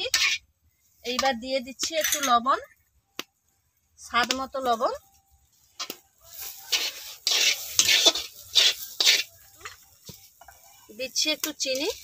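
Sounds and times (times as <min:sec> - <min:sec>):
steel spatula scraping thick paste: 0:00.0 - 0:00.4, 0:06.3 - 0:09.9.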